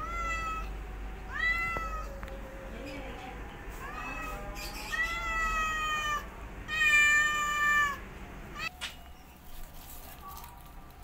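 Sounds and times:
cat meowing: 0.0s - 2.3s, 3.8s - 8.0s.

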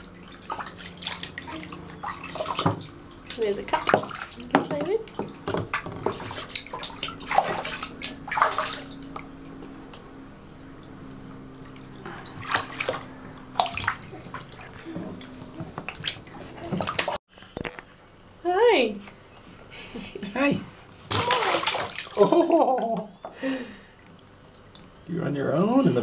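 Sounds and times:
bathwater splashing: 0.0s - 10.0s, 10.7s - 17.2s, 21.0s - 24.8s.

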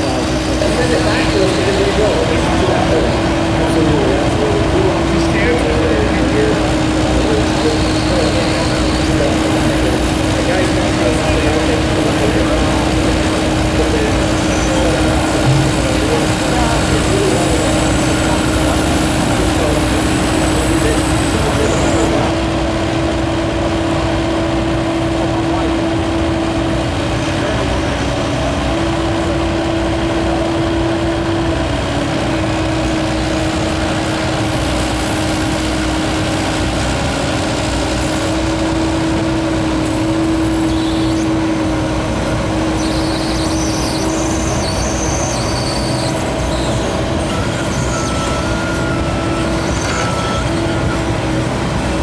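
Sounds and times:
excavator diesel engine running: 0.0s - 52.0s
hydraulic whine: 0.0s - 52.0s
brief high squeaks: 42.8s - 51.1s.

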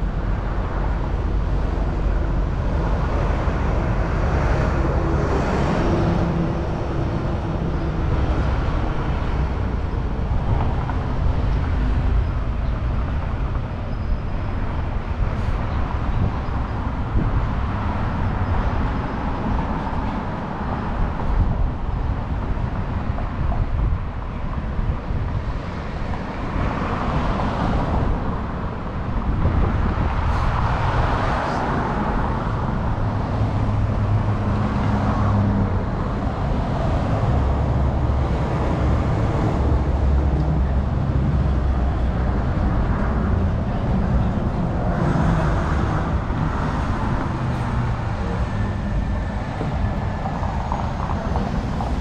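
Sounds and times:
cars passing: 0.0s - 52.0s
wind rumble on microphone: 0.0s - 52.0s.

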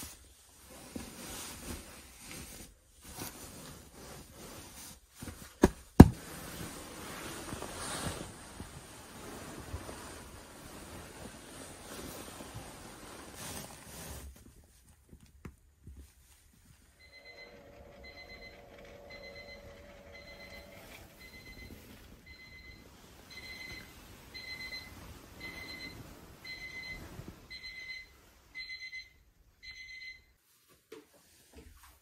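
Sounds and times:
electronic alarm beeping: 17.0s - 30.3s.

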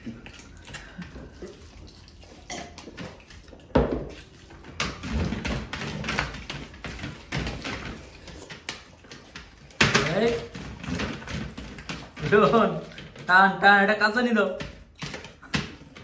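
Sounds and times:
chewing: 0.0s - 5.1s
hand mixing food on steel plate: 0.0s - 16.0s.

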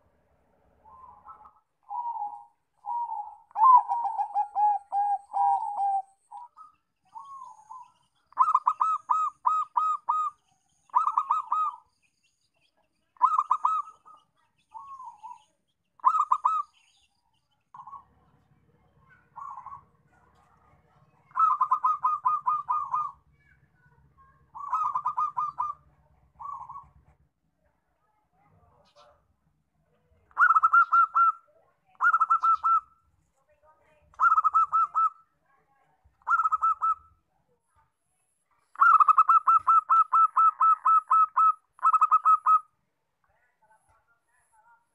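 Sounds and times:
doves cooing: 0.8s - 11.9s, 13.2s - 15.4s, 16.0s - 16.8s, 17.7s - 27.2s, 30.3s - 31.4s, 32.0s - 32.9s, 34.2s - 35.2s, 36.2s - 37.2s, 38.7s - 42.7s
faint low hum: 17.3s - 30.5s.

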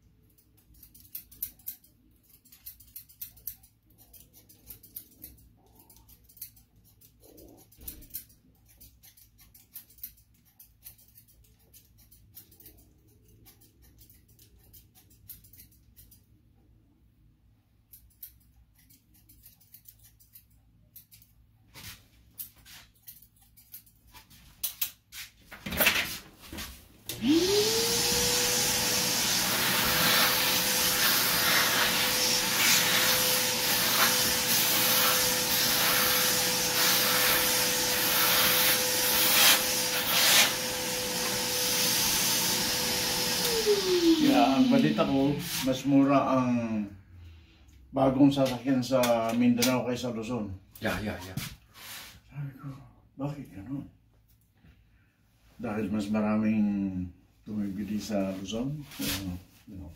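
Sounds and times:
scissors snipping: 0.3s - 16.3s, 17.9s - 21.4s
hair vacuum motor whine: 27.1s - 45.4s.

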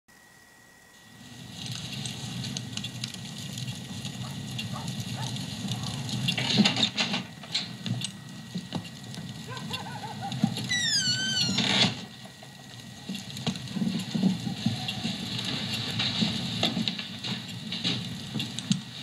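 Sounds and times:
faint high whine: 0.1s - 19.0s
small squeaks: 8.8s - 12.1s.

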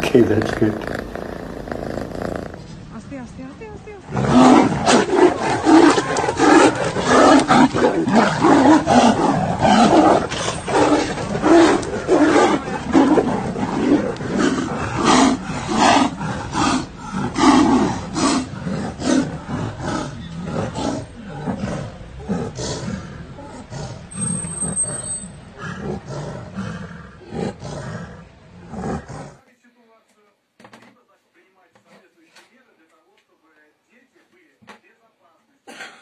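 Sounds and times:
tigers roaring and snarling: 4.0s - 29.4s.

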